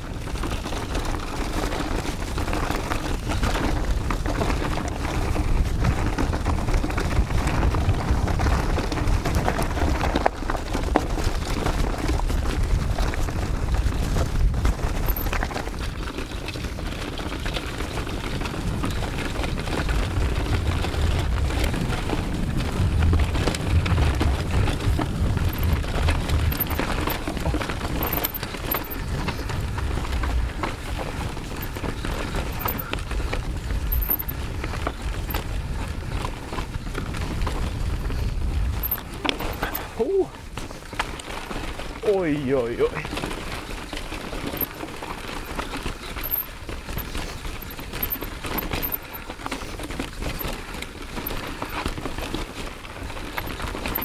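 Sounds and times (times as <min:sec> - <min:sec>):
bike rattling and knocking: 0:00.0 - 0:54.0
wind buffeting microphone: 0:03.2 - 0:10.2, 0:18.2 - 0:40.8.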